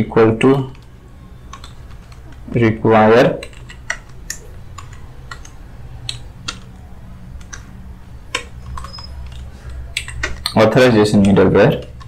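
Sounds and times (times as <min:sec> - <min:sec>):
low steady hum: 0:00.0 - 0:12.0
keyboard keystrokes: 0:01.5 - 0:02.5, 0:03.4 - 0:10.6.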